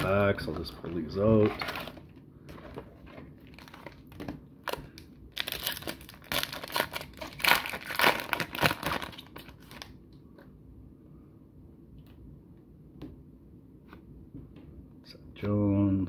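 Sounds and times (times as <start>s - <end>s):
foil wrapper crinkling and tearing: 3.4s - 10.0s.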